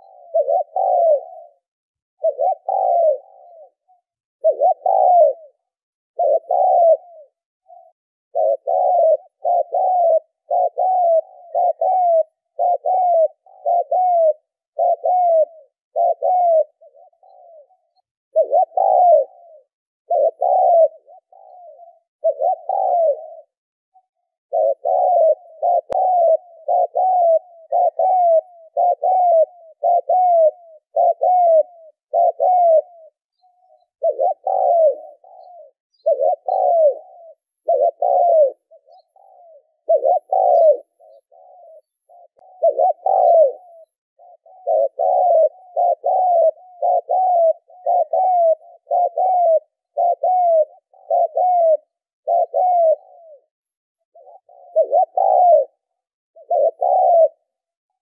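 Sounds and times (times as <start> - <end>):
dove cooing: 0.0 - 58.0.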